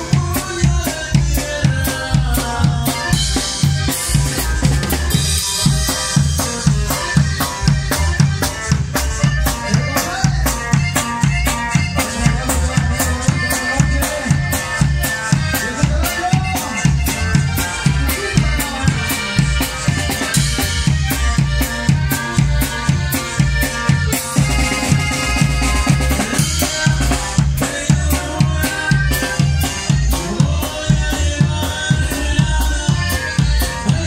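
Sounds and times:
drum kit beat: 0:00.0 - 0:34.0
live band music: 0:00.0 - 0:34.0.

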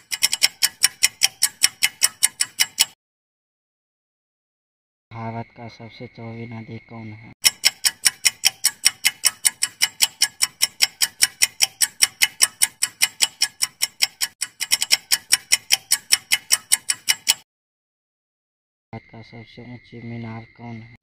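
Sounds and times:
fast clock ticks: 0:00.0 - 0:03.0, 0:07.4 - 0:17.4.

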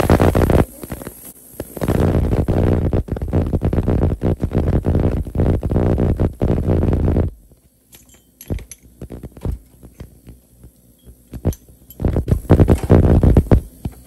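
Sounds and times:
ultrasonic cleaner throbbing hum: 0:00.0 - 0:14.0
metal instruments clinking: 0:07.9 - 0:09.0.

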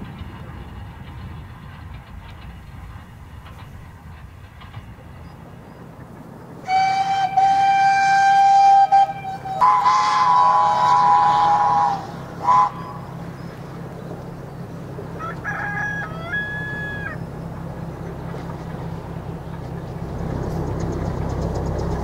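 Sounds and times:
train running: 0:00.0 - 0:22.0
steam locomotive whistle: 0:06.6 - 0:13.3.

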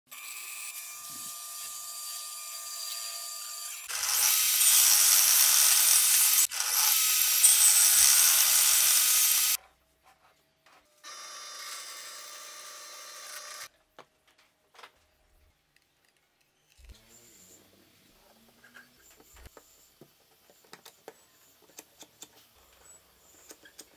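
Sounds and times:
table saw cutting wood: 0:00.1 - 0:09.6, 0:11.0 - 0:13.7.

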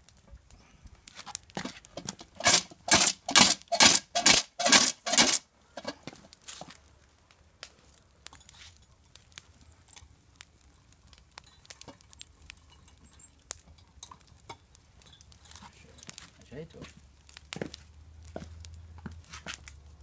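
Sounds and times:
wood fire crackling: 0:00.0 - 0:20.0
metal pot clanking on chain: 0:02.0 - 0:05.9.

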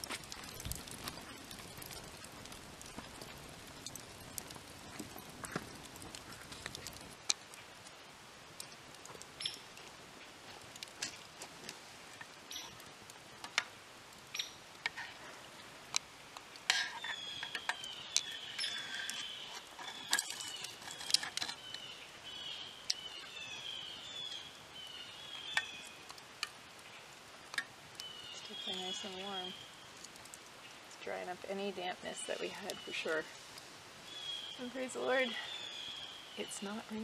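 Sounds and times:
campfire crackling and popping: 0:00.0 - 0:37.0.

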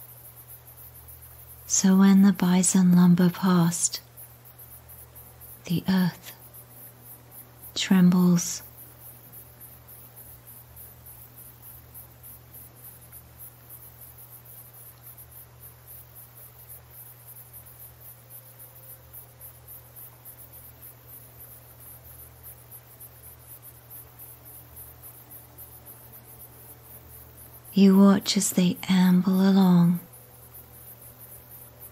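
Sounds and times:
faint crickets chirping: 0:00.0 - 0:31.9.

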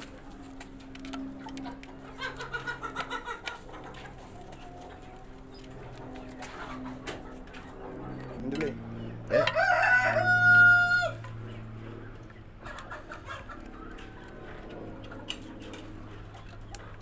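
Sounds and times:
steady low hum: 0:00.0 - 0:17.0
rooster crowing: 0:09.3 - 0:11.3.

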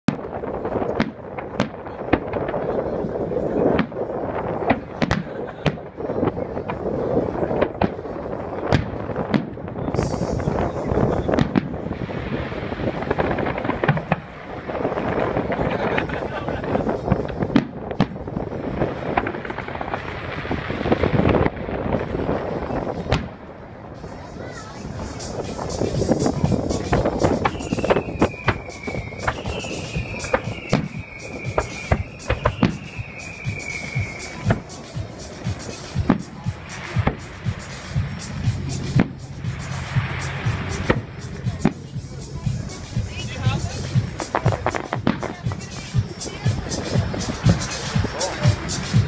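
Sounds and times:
fireworks booms and cracks: 0:00.1 - 0:49.0
steady rumble: 0:00.2 - 0:49.0
firework shells bursting: 0:25.0 - 0:42.4.

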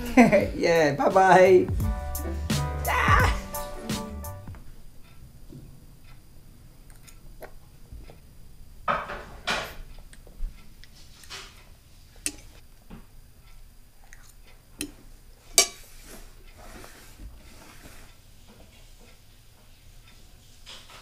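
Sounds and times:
fork clinking and scraping on plate: 0:14.2 - 0:16.0.

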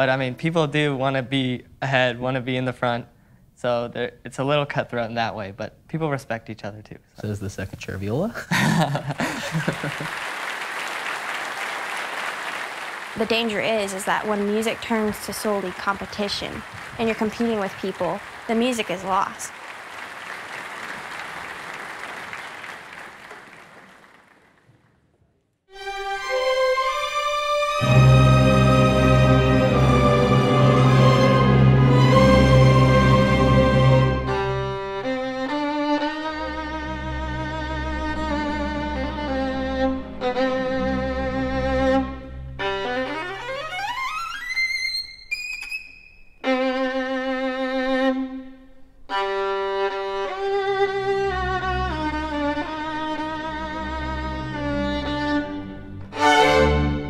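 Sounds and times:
orchestra low strings: 0:00.0 - 0:24.2, 0:25.7 - 0:44.5, 0:46.4 - 0:57.0
audience applause: 0:08.8 - 0:24.9
violin playing long held notes: 0:25.7 - 0:44.9, 0:46.4 - 0:57.0.

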